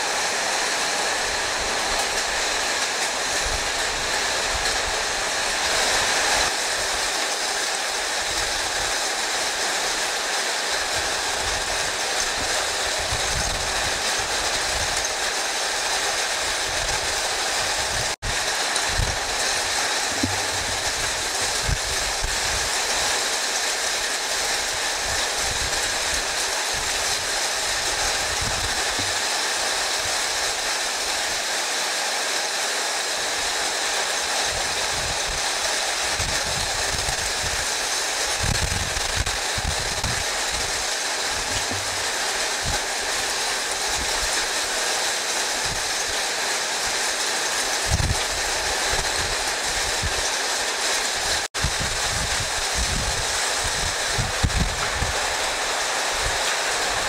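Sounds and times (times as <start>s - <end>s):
heavy rain pouring: 0.0s - 57.0s
wind gusting on microphone: 10.9s - 15.3s, 16.2s - 23.2s, 24.6s - 30.8s, 34.5s - 44.6s, 47.8s - 50.3s, 51.2s - 57.0s.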